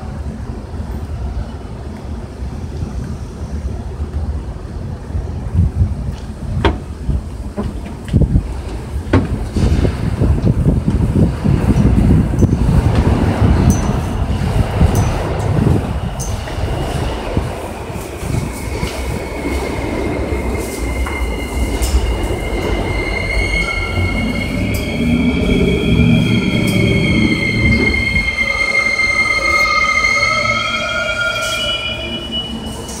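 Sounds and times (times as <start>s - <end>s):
train rumble: 0.0s - 33.0s
train wheels squealing on rails: 11.4s - 33.0s.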